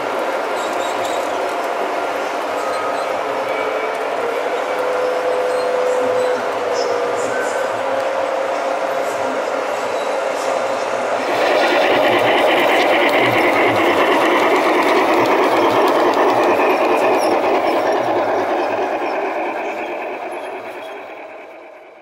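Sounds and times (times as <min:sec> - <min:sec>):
model train whirring rattle: 0:10.8 - 0:22.0.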